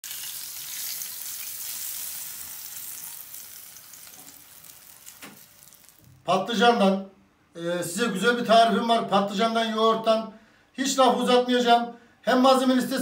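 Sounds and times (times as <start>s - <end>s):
hot oil sizzling on yogurt: 0.0s - 6.1s.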